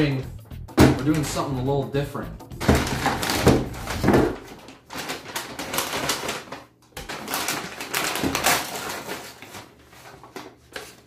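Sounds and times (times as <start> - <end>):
paper bag crinkling: 2.6 - 11.0.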